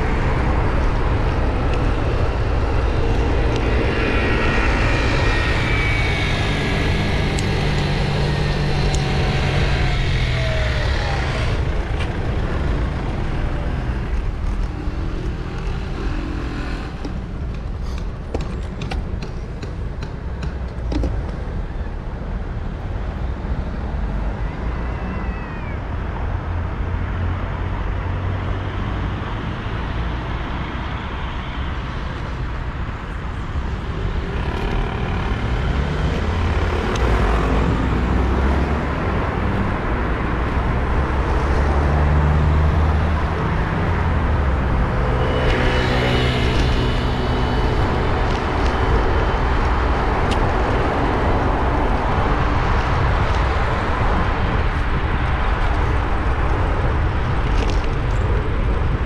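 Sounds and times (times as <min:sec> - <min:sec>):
low traffic rumble: 0:00.0 - 0:59.0
vehicle engines passing: 0:00.0 - 0:59.0.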